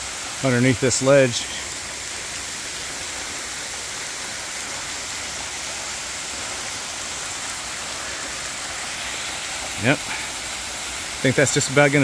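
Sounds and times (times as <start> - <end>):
waterfall splashing onto rocks: 0.0 - 12.0.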